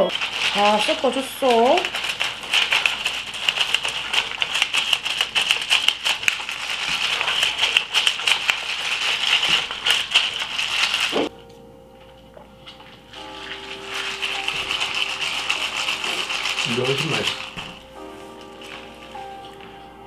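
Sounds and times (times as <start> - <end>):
drink fizzing over ice: 0.1 - 11.3, 13.1 - 19.5
ice clinking: 13.1 - 19.7.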